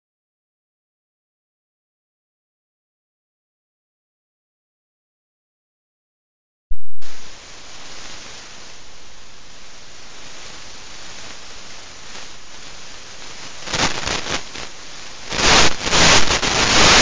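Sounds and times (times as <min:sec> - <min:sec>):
short loud pop: 0:06.7 - 0:07.4
static hiss: 0:06.8 - 0:17.0.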